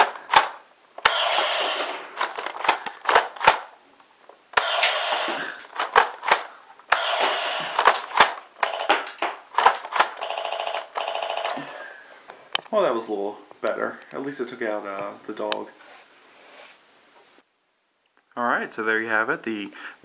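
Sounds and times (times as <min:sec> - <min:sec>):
toy electronic noisy rush: 0:01.0 - 0:02.0, 0:04.6 - 0:05.6, 0:06.9 - 0:08.0, 0:08.6 - 0:09.1, 0:10.2 - 0:11.6.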